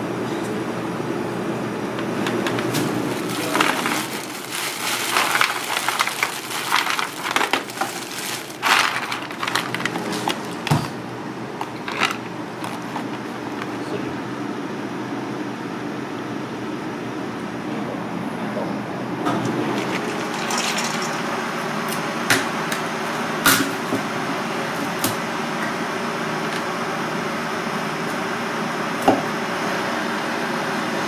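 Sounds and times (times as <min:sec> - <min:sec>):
low background hum: 0:00.0 - 0:30.2
plastic bag crinkling: 0:02.9 - 0:10.9, 0:11.6 - 0:13.8, 0:19.6 - 0:21.6.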